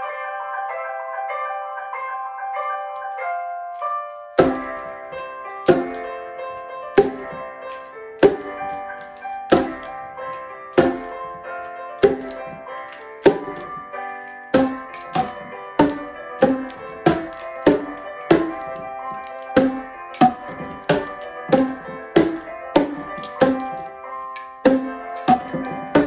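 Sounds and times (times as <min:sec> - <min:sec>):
plastic tubes struck in beat: 0:04.4 - 0:06.2, 0:07.0 - 0:26.0.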